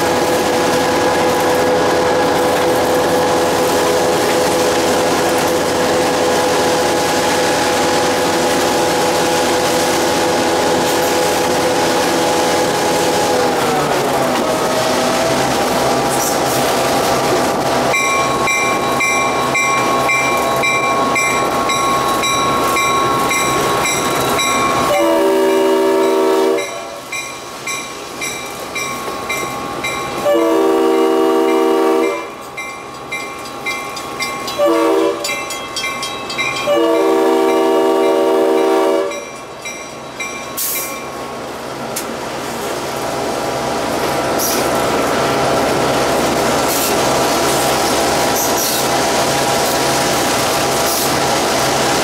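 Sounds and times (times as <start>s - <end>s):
train track rumble: 0.0s - 52.0s
locomotive horn blasts: 24.9s - 27.0s, 30.2s - 32.4s, 34.6s - 35.3s, 36.6s - 39.3s.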